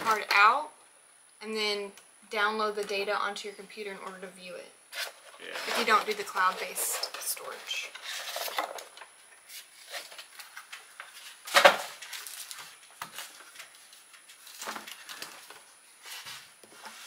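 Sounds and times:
foam packing rustling: 4.9 - 17.0.

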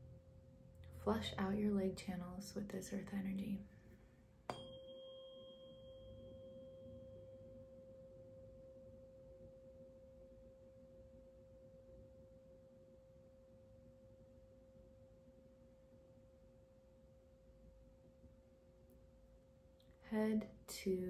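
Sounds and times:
fainter higher ring: 4.5 - 10.2
tuning fork ringing: 4.5 - 15.2.

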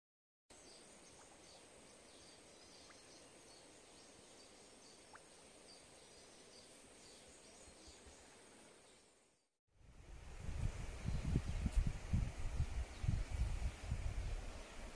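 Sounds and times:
low steady wash of stream: 9.8 - 14.9.

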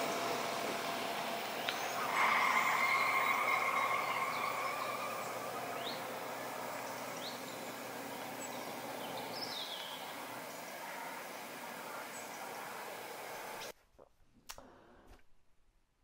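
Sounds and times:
steady hum: 0.0 - 13.7
bird chirps: 1.6 - 10.3.

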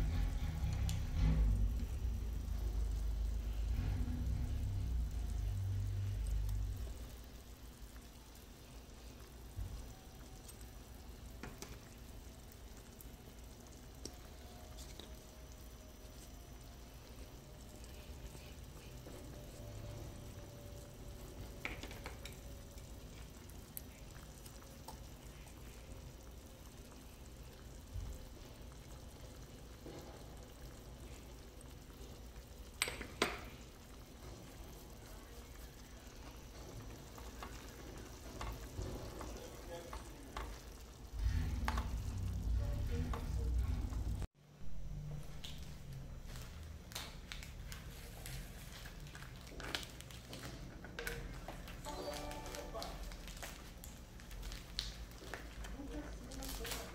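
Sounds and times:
low rumble: 0.0 - 7.2, 41.0 - 46.3
beans cooking in a pan: 0.0 - 56.9.

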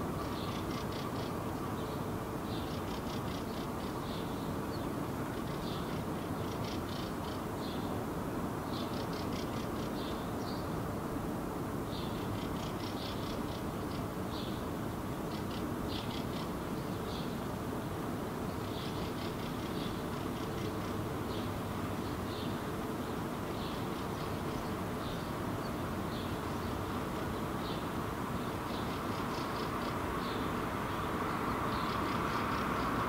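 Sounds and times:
songbird trilling: 0.2 - 7.9, 15.3 - 17.4, 23.5 - 33.0.

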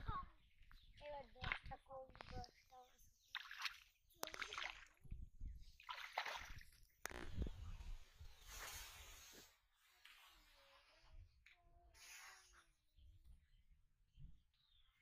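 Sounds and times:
water sloshing around wading legs: 0.6 - 7.6.

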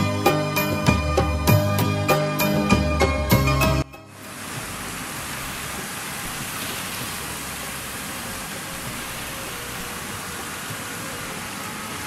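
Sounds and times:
water rushing over boulders: 3.9 - 12.0.

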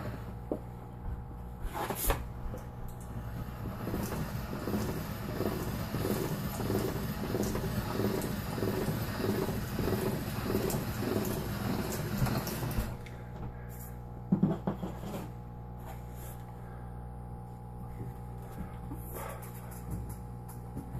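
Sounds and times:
pasta machine rhythmic churning: 0.0 - 0.6, 2.5 - 13.1.

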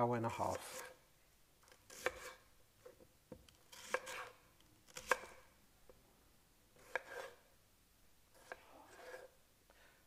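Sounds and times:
knife chopping on wooden board: 1.9 - 2.4, 3.7 - 4.3, 4.9 - 5.4, 6.8 - 7.4.

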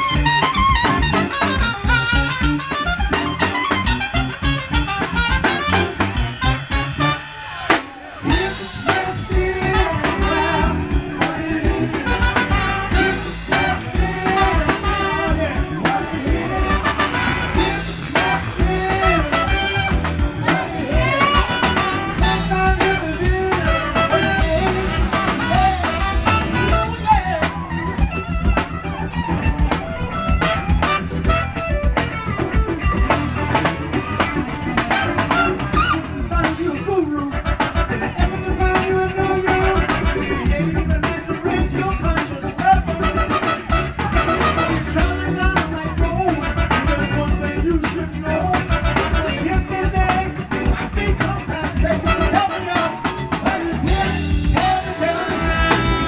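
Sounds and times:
horn section playing: 0.0 - 47.7, 48.3 - 51.2, 51.8 - 56.0
live funk band: 0.0 - 56.0.

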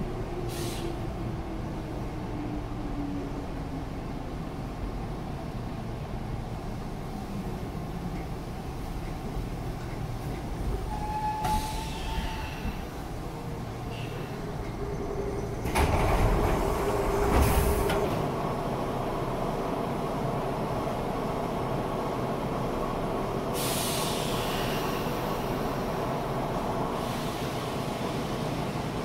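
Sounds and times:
stopped train humming: 0.0 - 29.0
train doors banging open: 10.2 - 12.9, 15.4 - 18.4
hissing air: 23.6 - 25.7.

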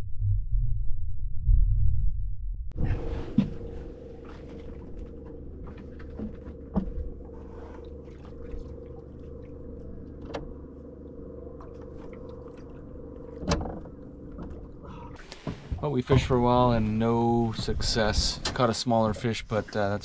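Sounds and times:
small boat motor running: 3.0 - 16.9.

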